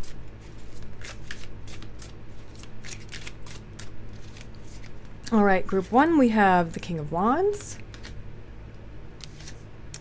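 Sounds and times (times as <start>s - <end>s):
cards being shuffled: 0.0s - 5.2s, 7.5s - 8.2s, 9.2s - 10.0s.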